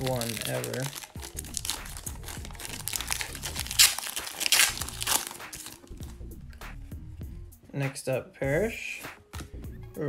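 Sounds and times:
foil wrapper crinkling and ripping: 0.0 - 6.2.

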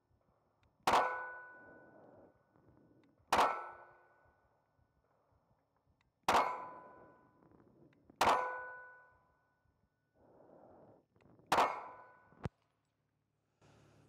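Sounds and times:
steel plate target ringing: 0.9 - 1.6, 3.4 - 4.0, 6.3 - 7.1, 8.2 - 9.1
pistol shots: 3.3 - 4.0.

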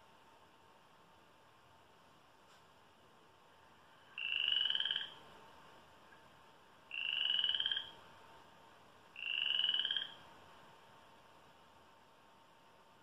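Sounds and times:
frog croaking through speaker: 4.0 - 5.2, 6.9 - 8.0, 9.1 - 10.2.

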